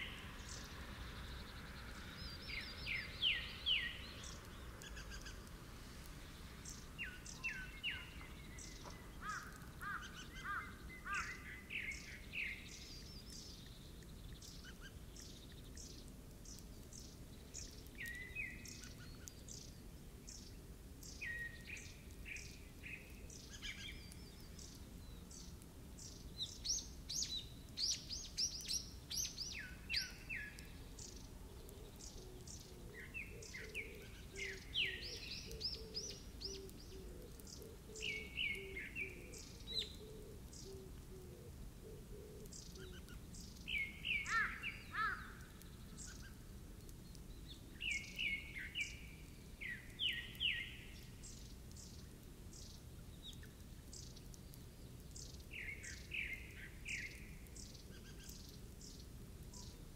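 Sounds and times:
faint outdoor ambience: 0.0s - 59.9s
songbirds chirping and trilling: 0.0s - 59.9s.

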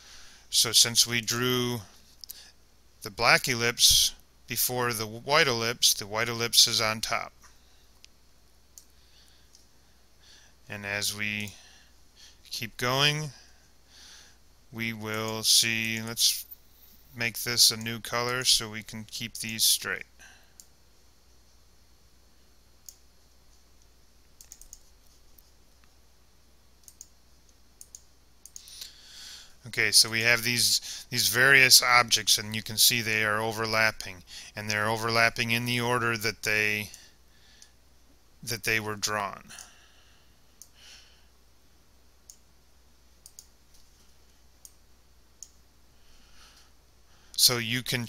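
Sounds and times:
faint low hum: 0.0s - 48.0s
computer mouse clicks: 22.8s - 25.9s, 26.8s - 29.0s, 43.2s - 44.8s.

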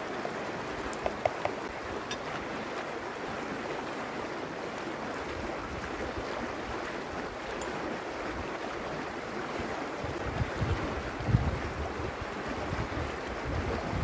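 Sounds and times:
river rushing over stones: 0.0s - 14.0s
wind buffeting microphone: 10.0s - 14.0s.

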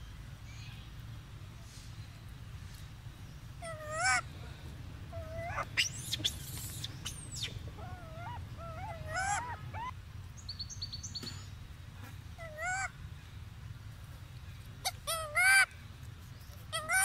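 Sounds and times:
steady low rumble: 0.0s - 16.7s
monkeys squeaking and cooing: 3.6s - 4.2s, 5.0s - 10.0s, 12.4s - 12.9s, 14.8s - 15.7s, 16.7s - 17.0s.

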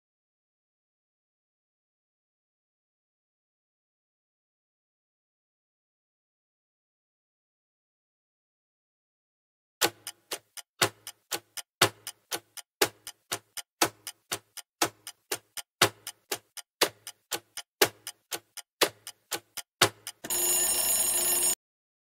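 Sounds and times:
clock ticking: 9.8s - 21.6s
steady alarm tone: 20.2s - 21.6s.

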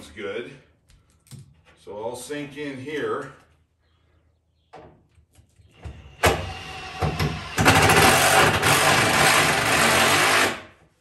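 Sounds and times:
impact driver driving a screw: 6.2s - 10.7s.

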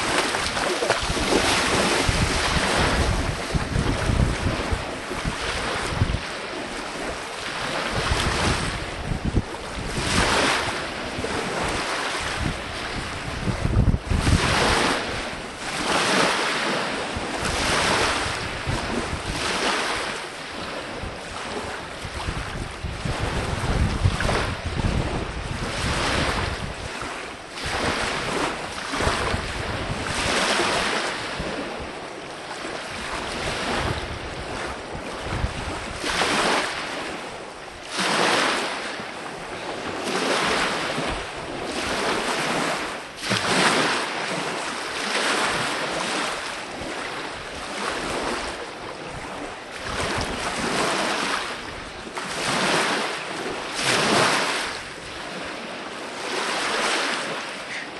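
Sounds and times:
small waves washing in: 0.0s - 57.9s
wind rumble on microphone: 0.0s - 57.9s.

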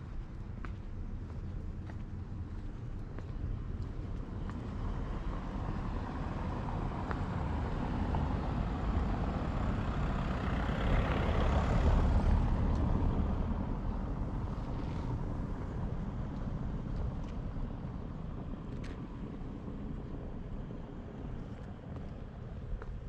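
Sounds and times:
vehicle passing by: 4.8s - 15.2s.

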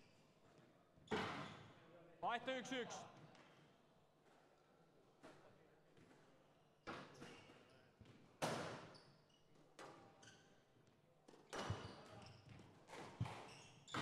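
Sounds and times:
shoes squeaking on court floor: 11.6s - 14.0s.

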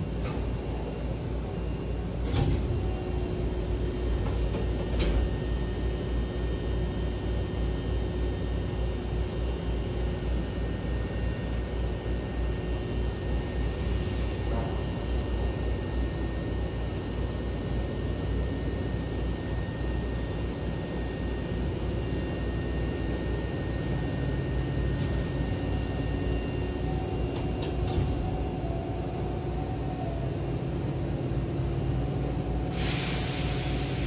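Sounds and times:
stopped train humming: 0.0s - 34.0s
sliding train door opening: 2.2s - 3.4s, 27.3s - 28.4s.

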